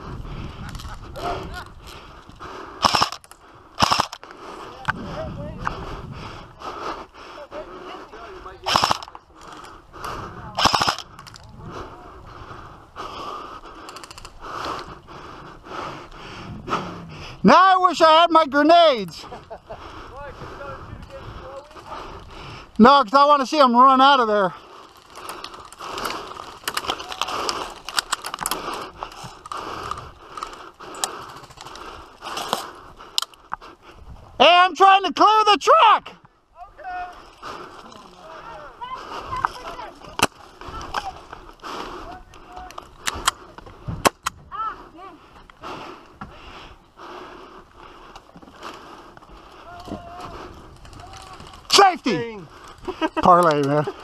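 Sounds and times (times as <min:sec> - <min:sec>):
airsoft rifle full-auto bursts: 0:02.8 - 0:03.2, 0:03.8 - 0:04.2, 0:08.7 - 0:09.1, 0:10.6 - 0:11.1
faint higher gunfire rattle: 0:02.8 - 0:04.2, 0:08.6 - 0:09.2
gear clicking and rattling: 0:13.2 - 0:15.0, 0:24.2 - 0:33.6, 0:47.7 - 0:54.0.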